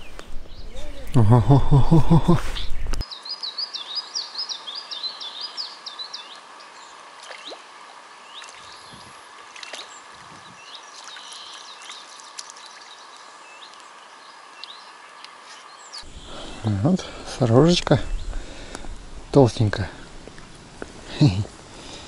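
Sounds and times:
bird chirps and calls: 0.0s - 1.4s, 2.1s - 6.8s
faint outdoor background: 0.0s - 22.0s
songbird singing: 0.0s - 22.0s.

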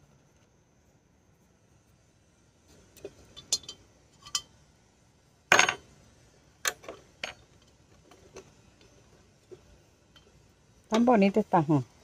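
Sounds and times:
pots and tools knocking: 3.4s - 4.5s, 5.5s - 5.8s.

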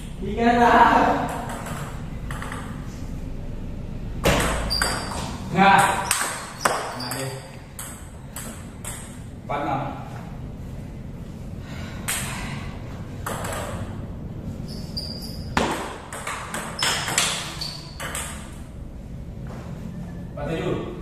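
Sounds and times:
steady low hum: 0.0s - 21.0s
table tennis ball clicks: 1.2s - 2.8s.

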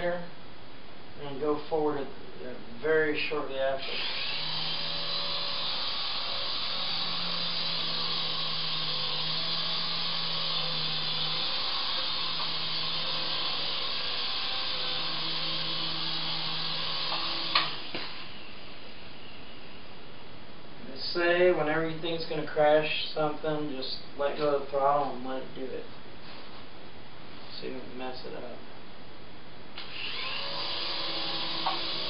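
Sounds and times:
toy helicopter rotor whirring: 3.8s - 18.2s, 29.9s - 32.0s.

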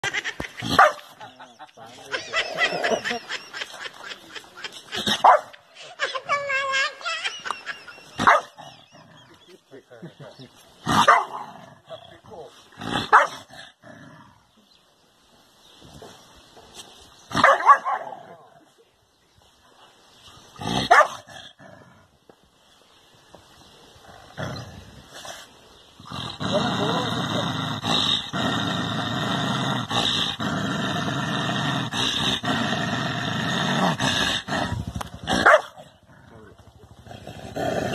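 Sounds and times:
dog barking: 0.8s - 1.0s, 5.2s - 5.6s, 8.2s - 8.5s, 11.0s - 11.4s, 13.1s - 13.4s, 17.4s - 18.2s, 20.9s - 21.2s, 35.4s - 35.8s
dog growling: 26.0s - 37.9s.

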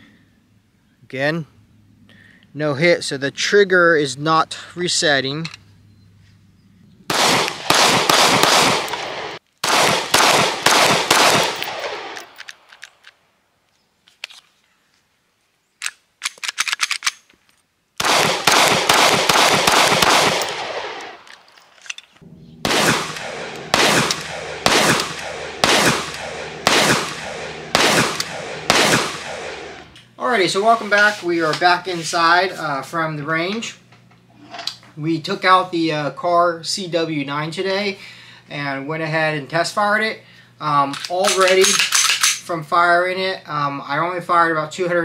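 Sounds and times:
pistol shots echoing: 7.1s - 12.7s, 18.0s - 21.4s, 22.6s - 30.0s.

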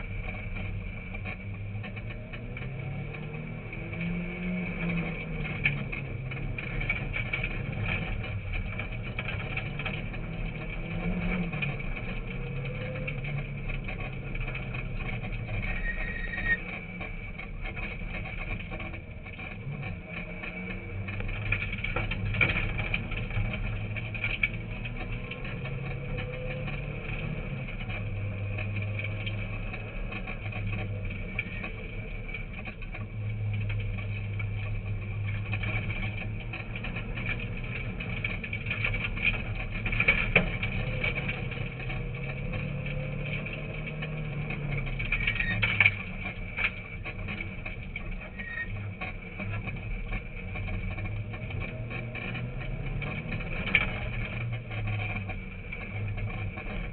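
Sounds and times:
car engine revving: 0.0s - 56.9s
road noise on gravel: 0.0s - 56.9s.

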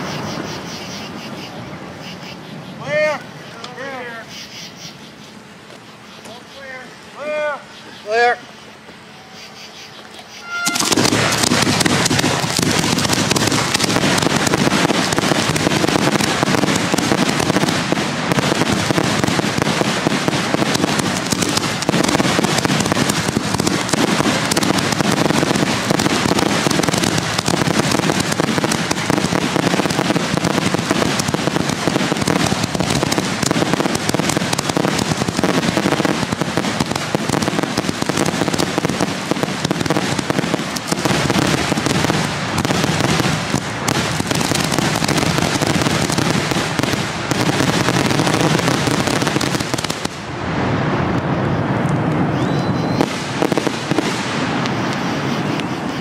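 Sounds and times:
fireworks launching and bursting: 0.0s - 4.8s, 10.2s - 56.0s.

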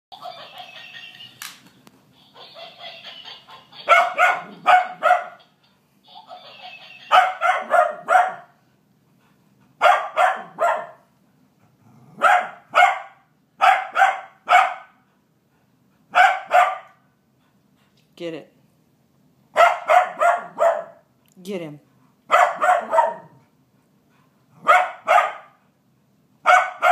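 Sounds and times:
toy rattling chatter: 0.2s - 1.6s, 2.2s - 4.1s, 5.4s - 7.2s
dog barking: 3.8s - 5.4s, 7.1s - 8.6s, 9.8s - 11.0s, 12.2s - 15.0s, 16.1s - 17.0s, 19.6s - 21.0s, 22.3s - 23.4s, 24.6s - 25.6s, 26.4s - 26.9s.

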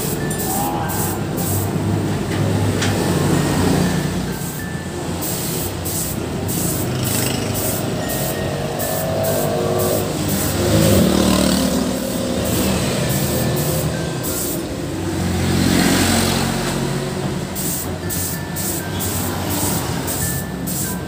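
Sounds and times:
spray gun hissing in bursts: 0.0s - 2.0s, 4.4s - 15.0s, 17.5s - 21.0s
heavy vehicle engine rumble: 0.0s - 15.2s
road traffic passing: 0.0s - 21.0s.

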